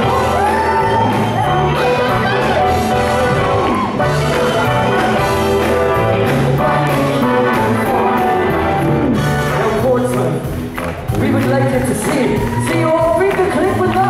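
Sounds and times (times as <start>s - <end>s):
backing band playing: 0.0s - 14.0s
male vocal group singing: 4.1s - 10.1s.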